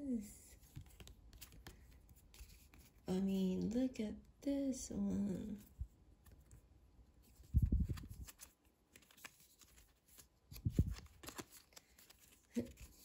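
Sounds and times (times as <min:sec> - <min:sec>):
photo cards flipping: 0:00.7 - 0:03.0, 0:07.3 - 0:13.0.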